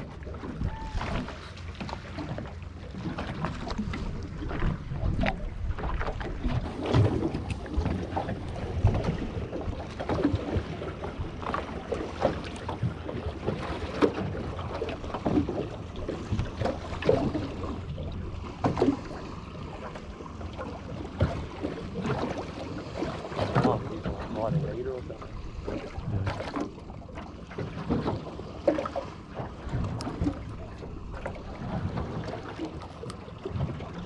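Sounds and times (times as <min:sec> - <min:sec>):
waves slapping against metal hull: 0:00.0 - 0:34.0
wind rumble on microphone: 0:00.0 - 0:34.0.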